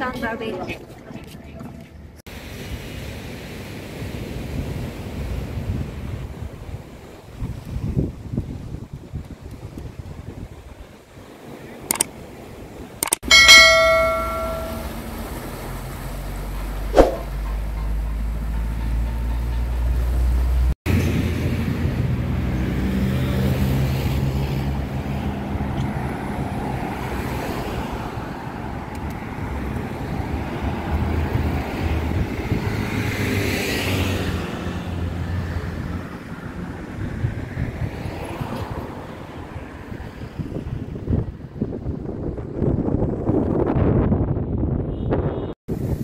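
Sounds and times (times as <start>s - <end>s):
wind rumbling on microphone: 0.3s - 13.0s, 20.9s - 46.0s
road traffic: 11.3s - 42.1s
vehicle passing close by: 20.0s - 40.9s.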